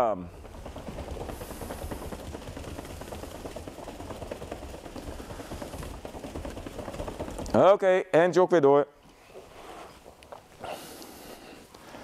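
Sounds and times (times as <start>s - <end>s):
bare feet stepping on a mat: 0.2s - 7.8s.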